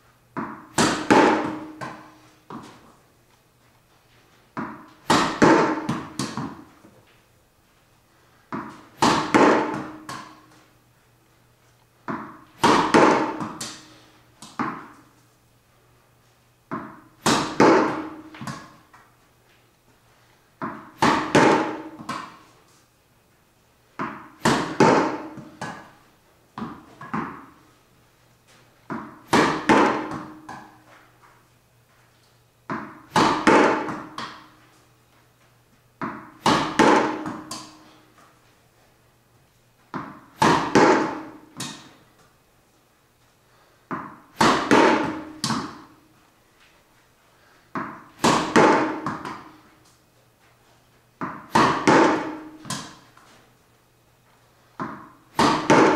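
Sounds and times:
tennis ball bouncing: 0.3 - 2.9, 4.5 - 6.9, 8.5 - 10.6, 12.0 - 15.1, 16.7 - 19.0, 20.6 - 22.5, 24.0 - 26.0, 26.6 - 27.6, 28.9 - 31.0, 32.7 - 34.6, 36.0 - 38.2, 39.9 - 42.1, 43.9 - 46.0, 47.7 - 49.7, 51.2 - 53.3, 54.8 - 55.9
ball hitting concrete wall: 0.3 - 3.0, 4.5 - 7.1, 8.5 - 10.7, 12.0 - 15.2, 16.7 - 19.2, 20.6 - 22.6, 24.0 - 27.8, 28.5 - 31.4, 32.6 - 34.8, 36.0 - 38.4, 39.8 - 42.3, 43.9 - 46.2, 47.7 - 50.0, 51.2 - 53.5, 54.7 - 55.9
racket striking tennis ball: 0.3 - 3.0, 4.5 - 7.0, 8.5 - 10.6, 12.0 - 15.1, 16.7 - 19.0, 20.6 - 22.6, 24.0 - 26.0, 26.6 - 27.6, 28.9 - 31.1, 32.7 - 34.7, 36.0 - 38.4, 39.9 - 42.2, 43.9 - 46.2, 47.7 - 50.0, 51.2 - 53.4, 54.8 - 55.9.

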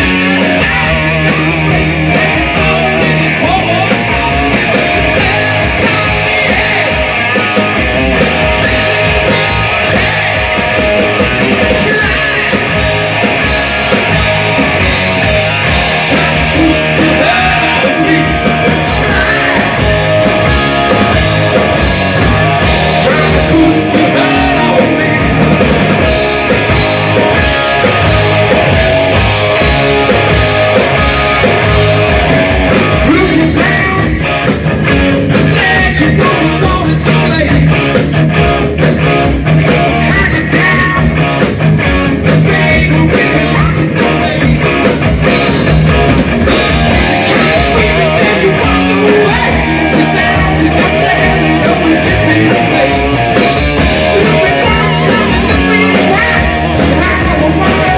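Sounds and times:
bass guitar: 0.0 - 57.9
distorted electric guitars: 0.0 - 57.9
drum kit: 0.0 - 57.9
male lead singer: 0.0 - 57.9.

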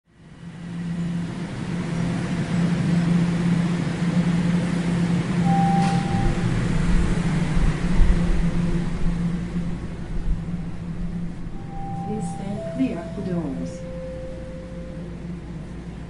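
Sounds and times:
train car hum and rumble: 0.1 - 16.0
short beep: 5.5 - 6.4, 11.6 - 15.2.

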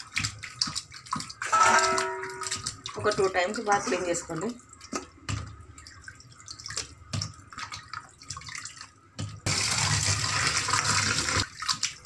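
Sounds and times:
tap water splashing on steel plate: 0.0 - 9.6.

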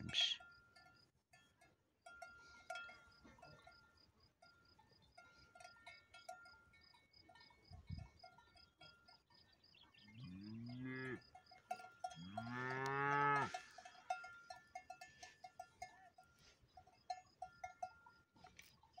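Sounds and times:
cowbells clanking: 0.0 - 19.0
cow mooing: 10.2 - 11.3, 12.2 - 13.7.

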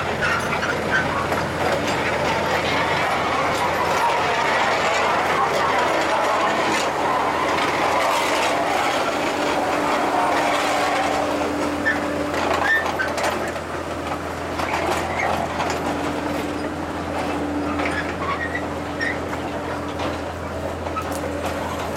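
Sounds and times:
locomotive engine hum: 0.0 - 21.9.

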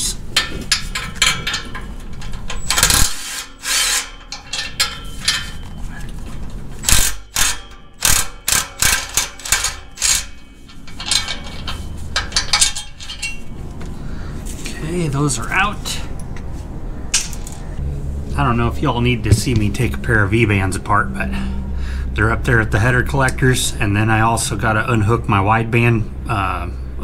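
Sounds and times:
metallic clicks and clanks: 0.0 - 14.0
sharp metal strikes: 6.8 - 13.6, 17.1 - 21.7.

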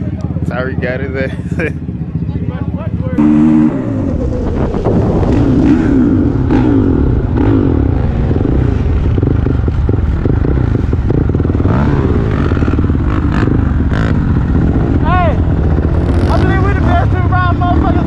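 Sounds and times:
dirt bike engine revving: 2.8 - 18.0.

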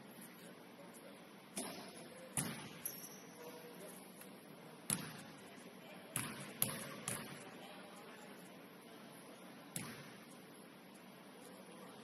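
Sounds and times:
basketball bouncing on gym floor: 1.6 - 3.0, 4.9 - 5.4, 6.1 - 7.4, 9.7 - 10.3.

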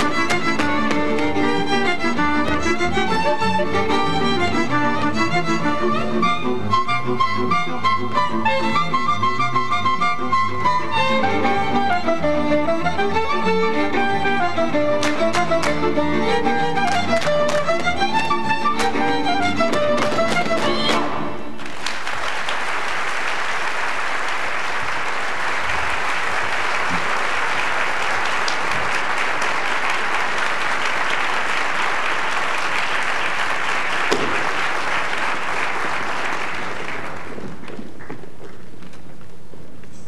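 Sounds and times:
audience applauding: 0.0 - 4.8, 15.0 - 38.4
fiddle folk dance music: 0.0 - 21.7, 24.8 - 39.3.

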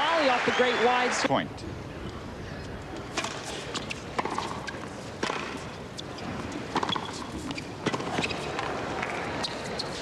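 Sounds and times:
tennis ball hit by racket: 3.1 - 5.6, 6.7 - 9.2.

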